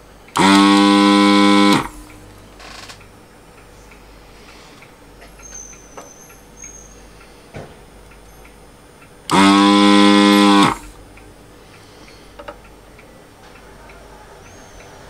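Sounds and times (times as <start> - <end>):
vacuum pump buzzing: 0.0 - 3.0, 9.2 - 11.2.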